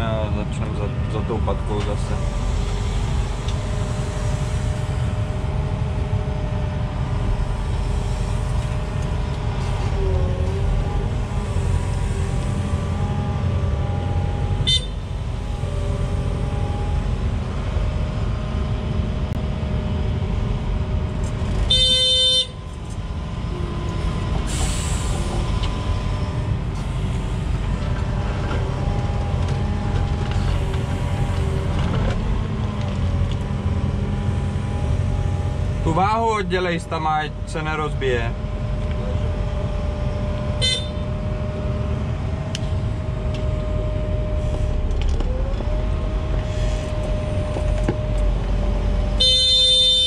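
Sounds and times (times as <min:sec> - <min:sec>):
diesel engine running: 0:00.0 - 0:50.0
whine shifting in pitch: 0:37.3 - 0:50.0
horn toot: 0:40.6 - 0:41.0, 0:49.2 - 0:50.0.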